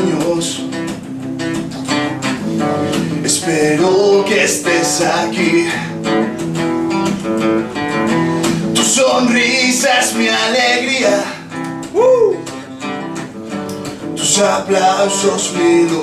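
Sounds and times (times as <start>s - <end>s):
man singing: 0.0s - 0.8s, 3.1s - 6.1s, 8.8s - 12.5s, 14.2s - 16.0s
acoustic guitar strumming: 0.0s - 16.0s.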